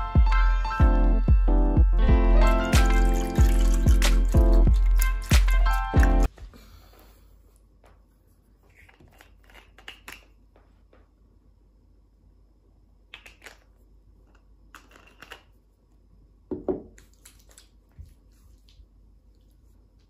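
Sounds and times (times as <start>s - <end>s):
bottles clicking and rustling: 2.5s - 6.3s
bottle knocking on wooden table: 16.5s - 16.9s.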